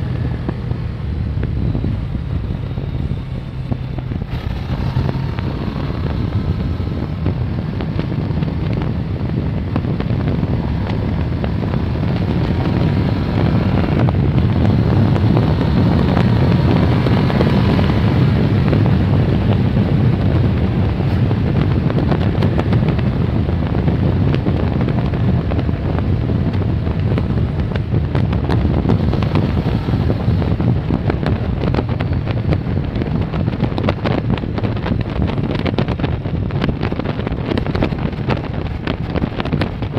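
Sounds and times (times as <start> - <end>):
motorcycle engine running: 0.0 - 39.9
wind buffeting microphone: 0.0 - 39.9.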